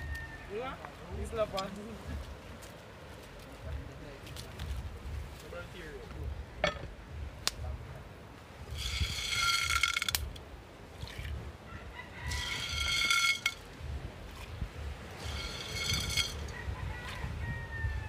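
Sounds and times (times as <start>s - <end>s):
rooster crowing: 0.0s - 0.6s, 11.6s - 13.6s, 15.3s - 18.0s.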